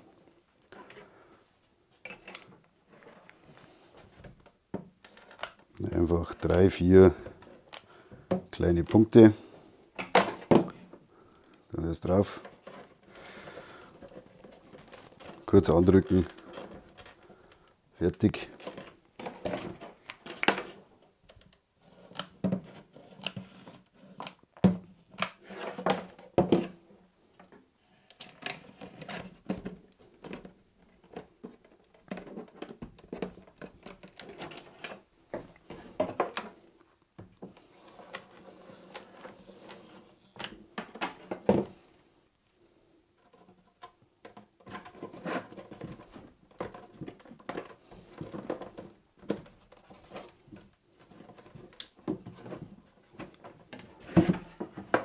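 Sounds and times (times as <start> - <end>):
plastic scraping on foam: 11.8 - 21.0, 21.8 - 24.4, 25.0 - 42.2, 43.1 - 55.0.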